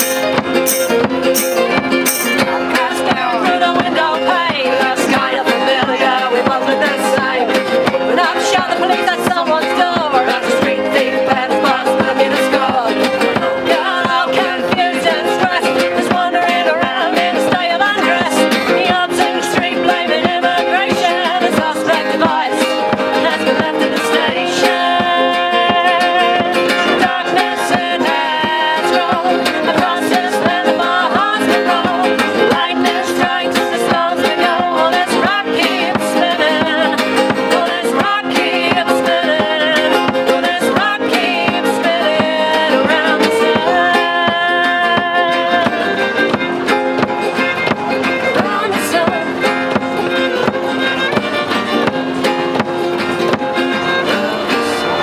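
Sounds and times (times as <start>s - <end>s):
fiddle melody: 0.0s - 55.0s
small plucked string instrument: 0.0s - 55.0s
strummed acoustic guitars: 0.0s - 55.0s.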